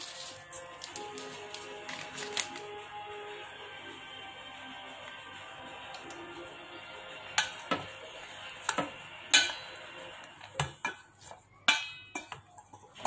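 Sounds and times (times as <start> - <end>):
utensil clinking against steel bowl: 8.6 - 9.8, 10.4 - 13.0.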